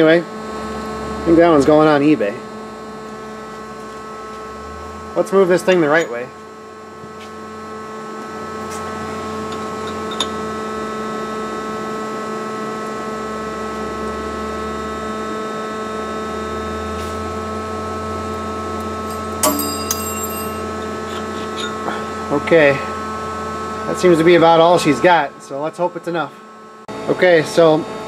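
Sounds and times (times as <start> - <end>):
metallic clink with ring: 19.1 - 20.8.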